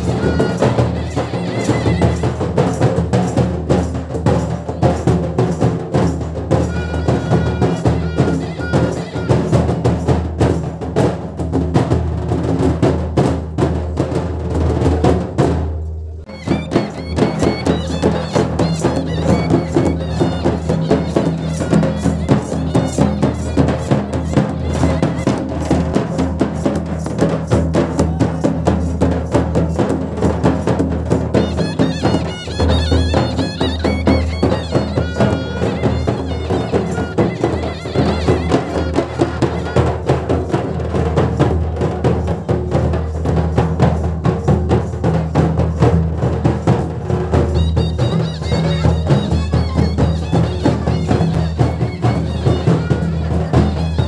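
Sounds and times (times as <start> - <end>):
shehnai wavering melody: 0.0 - 3.4, 4.2 - 10.0, 16.2 - 26.7, 31.3 - 40.8, 47.3 - 54.0
folk drums fast beat: 0.0 - 54.0.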